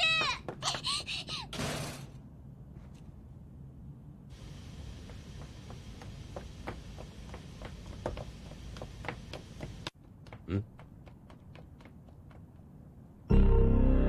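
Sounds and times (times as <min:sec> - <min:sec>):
footsteps running on hard ground: 0:04.9 - 0:12.6.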